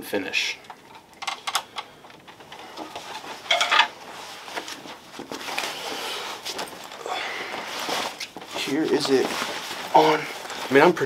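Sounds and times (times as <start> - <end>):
fabric rustling and swishing: 2.6 - 11.0.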